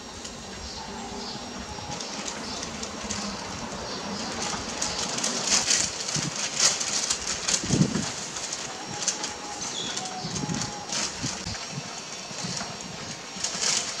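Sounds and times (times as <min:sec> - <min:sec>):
dove cooing: 0:00.0 - 0:14.0
fat sizzling on hot coals: 0:00.0 - 0:14.0.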